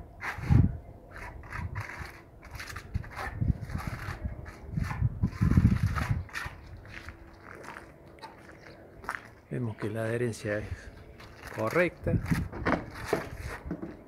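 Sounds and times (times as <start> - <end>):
trowel scraping cement: 0.2 - 6.7.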